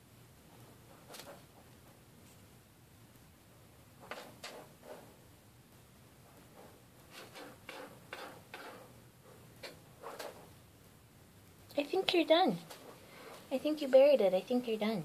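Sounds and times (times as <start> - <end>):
cat scratching in litter: 6.3 - 10.6.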